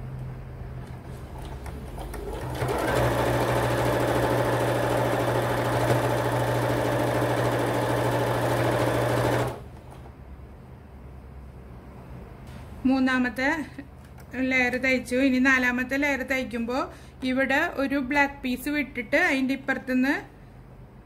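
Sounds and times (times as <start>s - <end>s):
sewing machine stitching: 1.5s - 9.6s.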